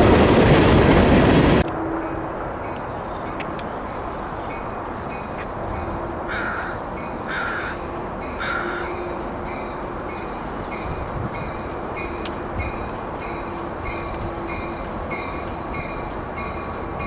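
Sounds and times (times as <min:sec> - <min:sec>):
crow cawing: 0:06.3 - 0:07.8, 0:08.4 - 0:09.0.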